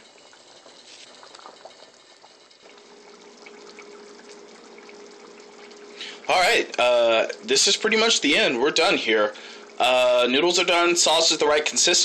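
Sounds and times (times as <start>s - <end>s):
steady hum: 0.0s - 12.0s
water boiling in pot: 0.0s - 12.0s.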